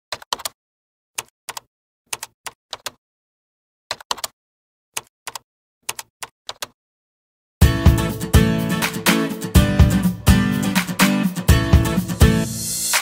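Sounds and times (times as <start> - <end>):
keyboard key clicks: 1.2 - 3.0, 3.9 - 4.3, 5.0 - 6.8.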